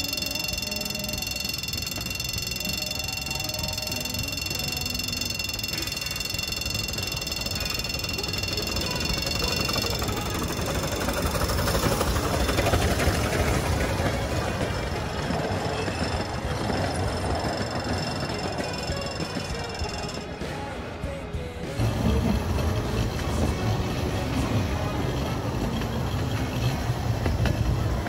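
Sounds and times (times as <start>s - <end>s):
steam train rumble: 0.0s - 20.7s, 21.7s - 28.0s
steady high whine: 0.0s - 20.8s.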